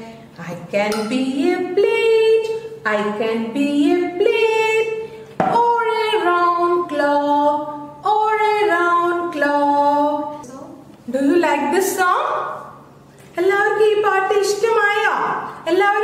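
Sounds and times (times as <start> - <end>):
woman singing unaccompanied: 0.6 - 10.4.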